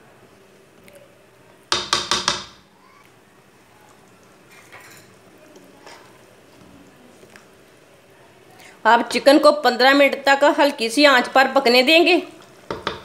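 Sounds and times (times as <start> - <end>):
wooden spoon knocking metal pot: 1.7 - 2.6, 12.7 - 13.0.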